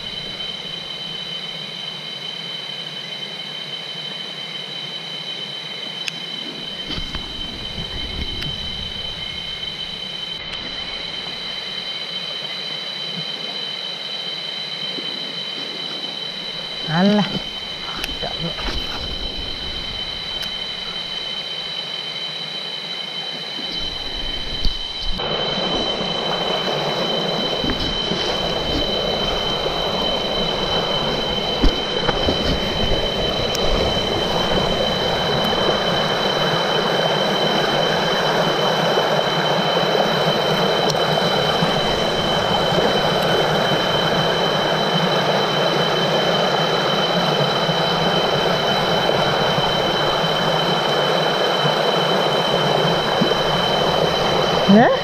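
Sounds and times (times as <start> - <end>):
steady high-pitched whine: 0.0 - 55.0
stream rushing over boulders: 23.7 - 55.0.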